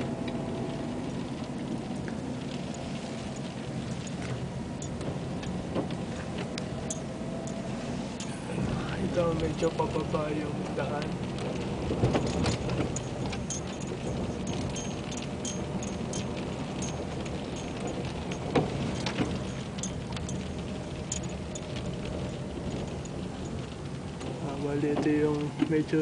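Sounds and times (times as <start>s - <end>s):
car engine and tyre hum: 0.0s - 26.0s
windshield wiper sweeping: 0.0s - 26.0s
light ticks and clicks: 9.1s - 26.0s.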